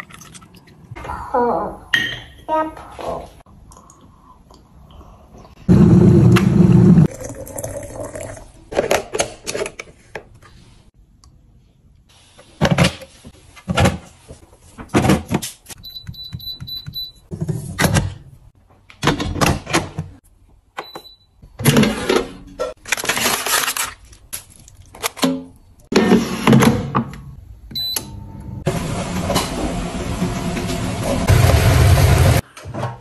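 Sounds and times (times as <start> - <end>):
knocks and clicks of appliances: 14.8 - 18.2, 25.1 - 28.1.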